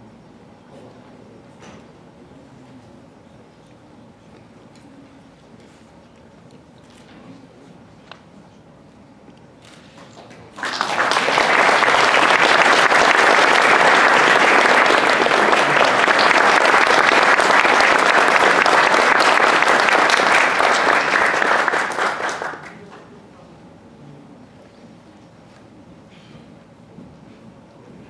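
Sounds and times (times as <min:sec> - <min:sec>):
audience applauding: 0:10.2 - 0:23.0.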